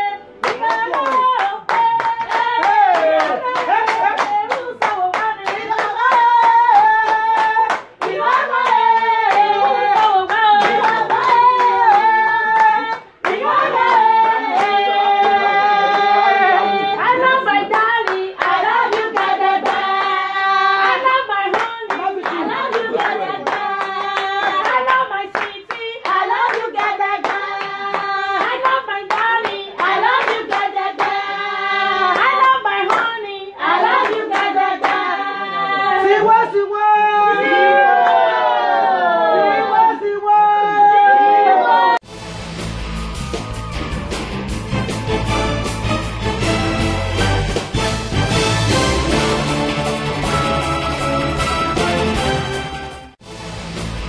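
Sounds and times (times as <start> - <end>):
rhythmic hand-clapping: 0.0 - 35.4, 43.2 - 52.6
person singing: 0.0 - 36.7.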